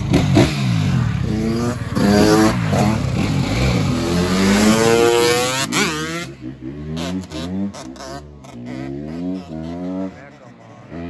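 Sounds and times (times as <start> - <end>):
scooter engines revving: 0.0 - 11.0.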